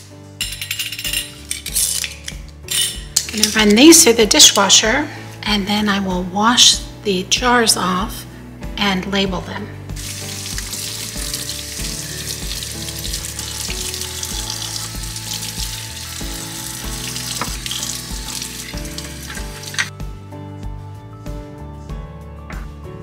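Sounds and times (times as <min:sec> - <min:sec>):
quiet background music with beat: 0:00.0 - 0:23.0
glass jars scrubbed in sink: 0:10.0 - 0:19.9
kitchen faucet running: 0:10.0 - 0:19.9.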